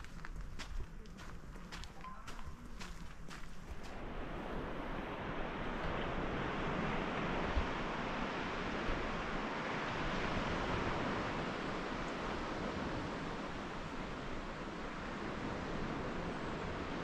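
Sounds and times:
wind: 0.0 - 17.0
sea surf rushing: 3.7 - 17.0.

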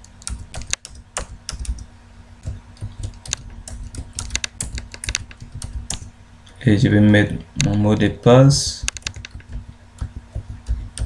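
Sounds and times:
typing on computer keyboard: 0.1 - 6.1, 8.8 - 11.0.

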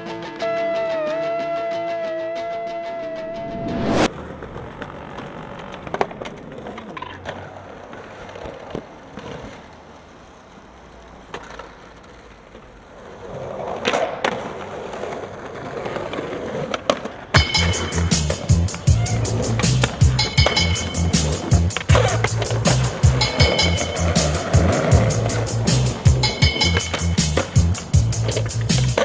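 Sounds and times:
skateboard wheels rolling on stone: 4.0 - 29.0
skateboard popping and landing: 4.2 - 9.8, 11.2 - 20.6, 21.2 - 29.0.

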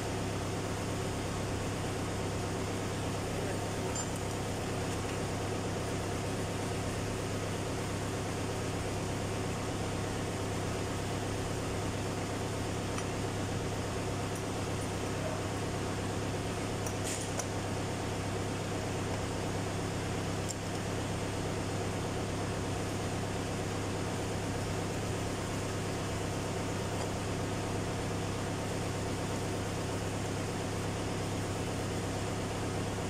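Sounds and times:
low mechanical hum: 0.0 - 33.0
faint metallic clinks: 3.9 - 4.4.

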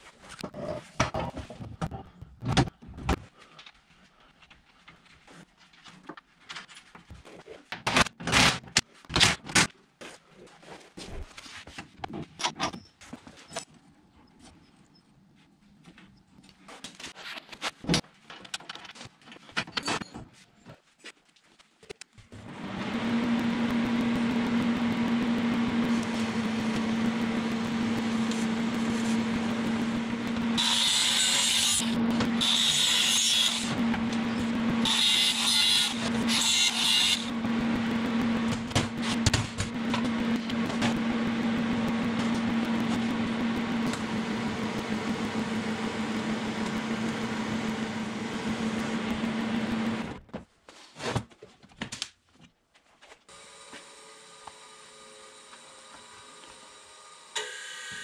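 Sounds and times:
power tool humming: 22.4 - 50.2, 53.3 - 58.0.

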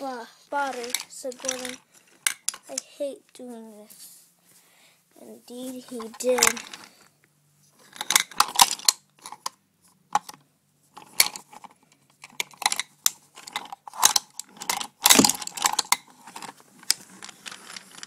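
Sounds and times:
wooden toy train pieces clattering: 0.5 - 2.9, 5.9 - 7.0, 7.8 - 9.5, 11.0 - 18.0.

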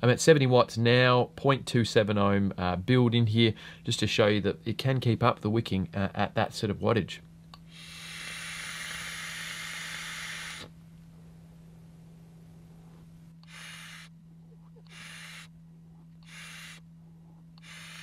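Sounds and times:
short breathy hisses: 7.7 - 10.6
airy vape draw hiss: 7.7 - 10.7, 13.4 - 14.1, 14.9 - 15.5, 16.2 - 16.8, 17.6 - 18.0.

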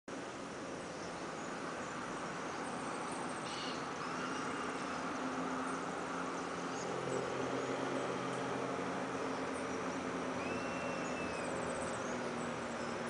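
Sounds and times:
faint high chirps: 10.4 - 12.0.

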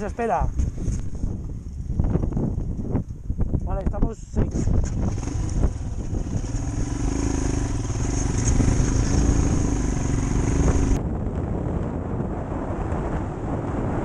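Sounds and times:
wind on microphone: 0.0 - 14.0
motorcycle engine pulling away: 4.5 - 11.0.

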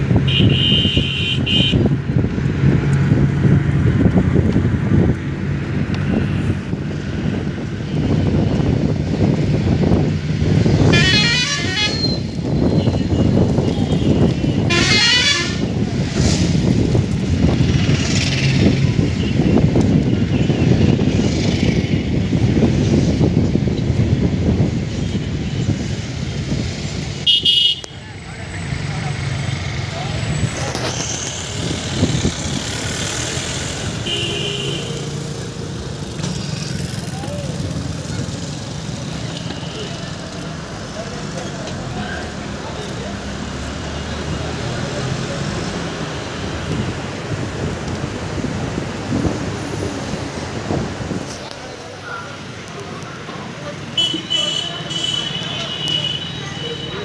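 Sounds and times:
road and traffic noise: 0.0 - 57.0
vehicle horn toot: 0.3 - 1.8, 10.9 - 12.2, 13.9 - 15.7, 27.3 - 27.9, 34.0 - 35.0, 54.0 - 57.0
warbling vehicle horn: 10.9 - 12.2, 14.7 - 15.7.

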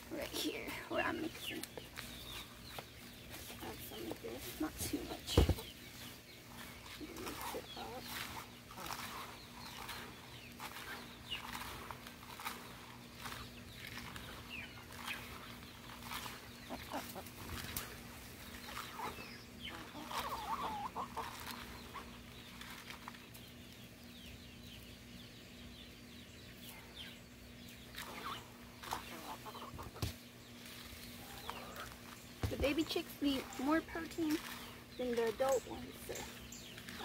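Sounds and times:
chickens clucking: 0.3 - 24.0, 26.5 - 37.0.

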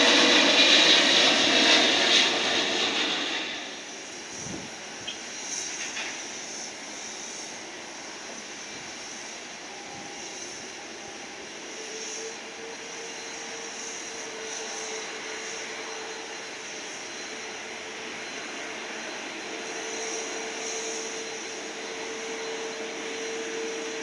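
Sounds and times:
jet aircraft rushing: 0.0 - 24.0
steady jet whine: 0.0 - 24.0.

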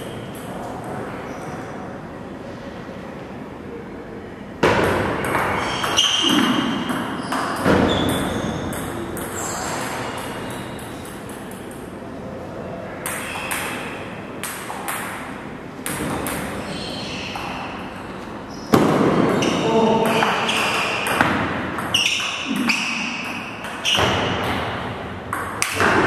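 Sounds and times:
table tennis ball hits: 4.6 - 12.0, 13.0 - 16.6, 18.7 - 26.0.

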